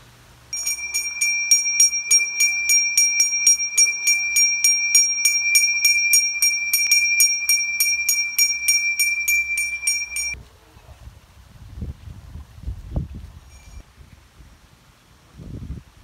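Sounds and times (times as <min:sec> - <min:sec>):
small hand bell ringing rapidly: 0:00.6 - 0:10.4
faint wind noise: 0:00.6 - 0:16.0.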